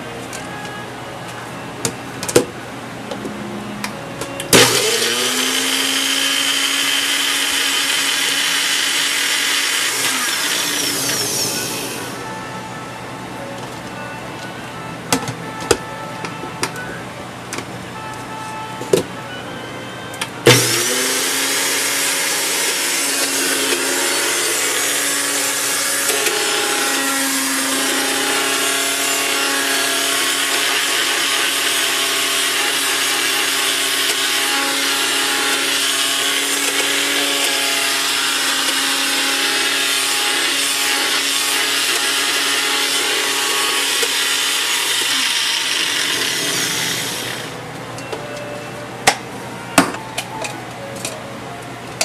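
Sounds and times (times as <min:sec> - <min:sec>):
blender motor whirring: 0:04.5 - 0:12.3, 0:20.4 - 0:47.6.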